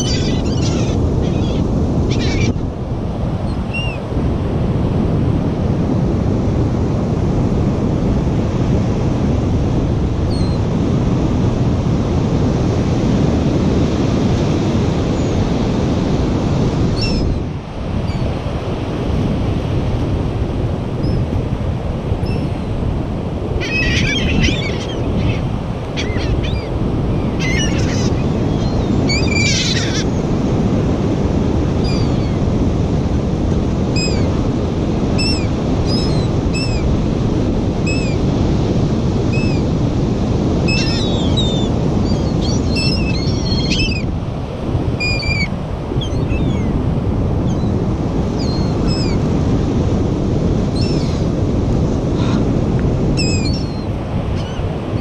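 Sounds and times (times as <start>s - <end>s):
gulls calling: 0.0s - 2.6s, 23.4s - 30.4s, 31.7s - 32.5s, 33.9s - 34.5s, 35.1s - 37.0s, 37.8s - 38.3s, 39.2s - 39.8s, 40.6s - 44.2s, 44.8s - 46.8s, 47.4s - 49.3s, 50.6s - 51.3s, 53.1s - 55.0s
surf rushing: 0.0s - 55.0s
wind on microphone: 0.0s - 55.0s.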